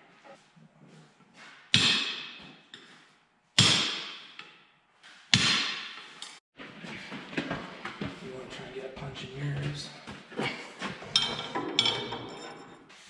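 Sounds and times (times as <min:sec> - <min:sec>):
metal-on-metal hammer blows: 0:03.6 - 0:04.5.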